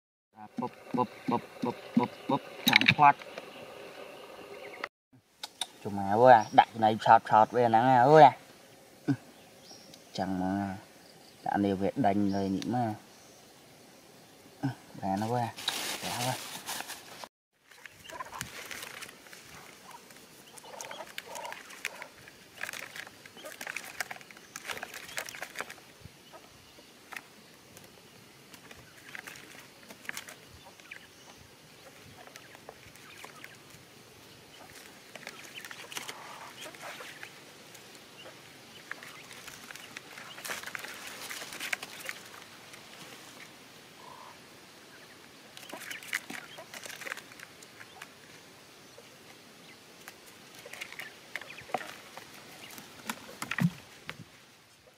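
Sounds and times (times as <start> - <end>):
quail clucking: 0.4 - 4.9, 17.8 - 18.6, 19.5 - 22.8, 34.5 - 37.3, 44.0 - 44.4, 45.0 - 47.2.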